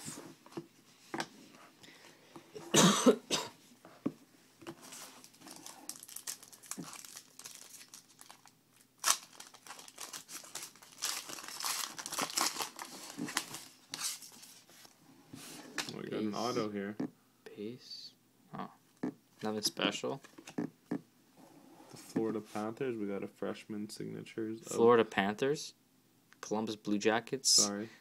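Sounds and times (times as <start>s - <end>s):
foil wrapper crinkling: 5.0s - 14.5s.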